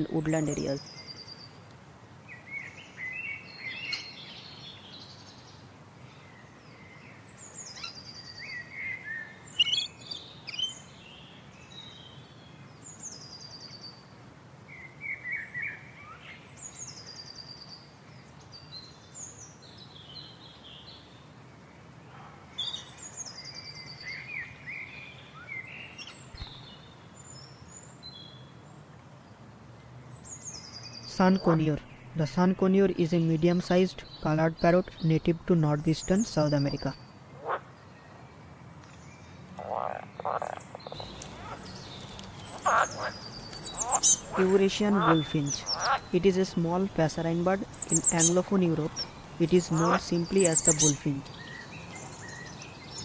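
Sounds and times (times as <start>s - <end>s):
birds chirping: 0.0s - 1.6s, 6.2s - 14.0s, 22.0s - 28.5s, 30.0s - 53.0s.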